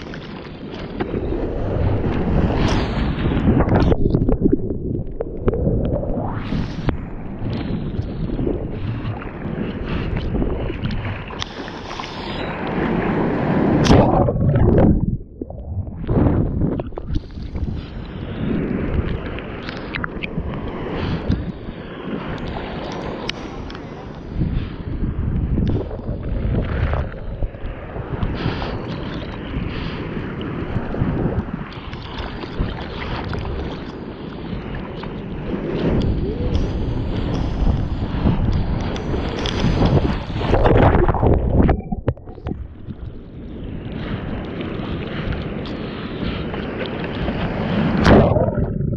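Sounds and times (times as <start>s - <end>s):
wind buffeting microphone: 0.0s - 11.6s, 12.4s - 48.9s
sea water splashing and rushing: 0.0s - 48.9s
loud water splash: 13.6s - 16.5s, 47.9s - 48.9s.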